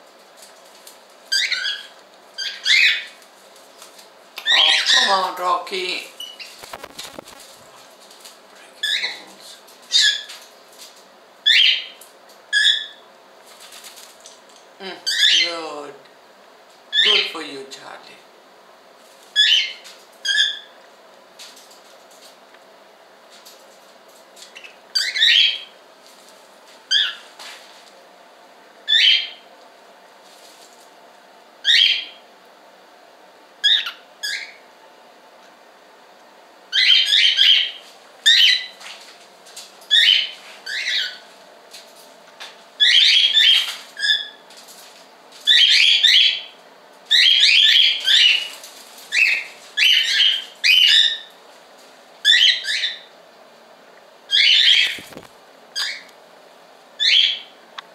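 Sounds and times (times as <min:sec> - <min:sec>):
cockatiels chirping: 0:01.3 - 0:03.2, 0:04.4 - 0:05.4, 0:08.8 - 0:09.3, 0:09.9 - 0:10.4, 0:11.4 - 0:13.0, 0:15.0 - 0:15.6, 0:17.0 - 0:17.3, 0:19.4 - 0:20.8, 0:24.5 - 0:25.7, 0:26.9 - 0:27.2, 0:28.9 - 0:29.4, 0:31.6 - 0:32.2, 0:33.6 - 0:34.6, 0:36.7 - 0:38.8, 0:39.9 - 0:41.2, 0:42.8 - 0:44.4, 0:45.5 - 0:51.4, 0:52.2 - 0:53.1, 0:54.3 - 0:56.1, 0:57.0 - 0:57.5.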